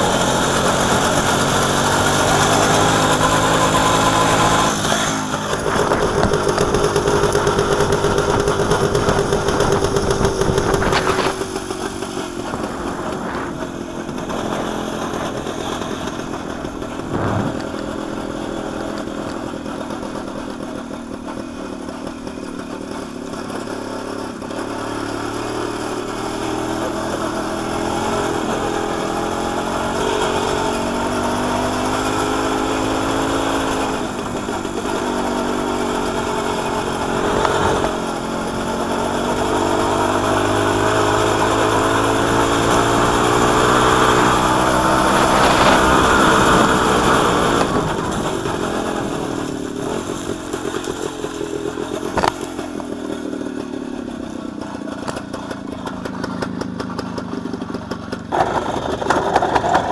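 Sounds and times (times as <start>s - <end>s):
motorcycle two-stroke engine: 0.0s - 59.9s.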